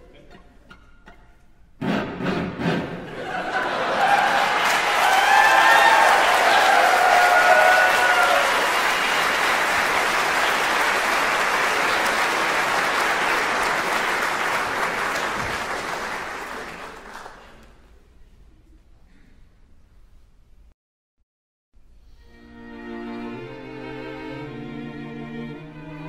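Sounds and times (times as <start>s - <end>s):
audience applauding: 3.2s - 17.8s.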